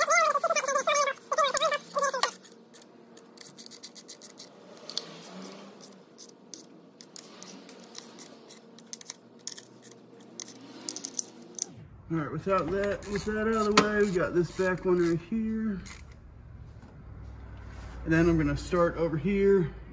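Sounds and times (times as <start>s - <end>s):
hand ratchet clicking: 5.8s - 11.7s, 12.8s - 15.2s, 15.8s - 16.2s.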